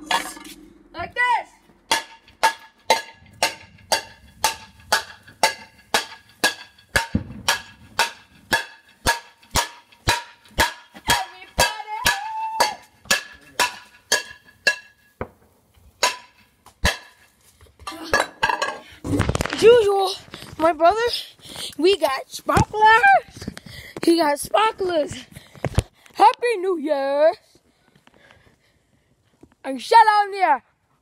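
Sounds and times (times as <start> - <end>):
metal cooking pot banging: 1.9 - 15.1, 16.0 - 17.2, 17.9 - 18.8.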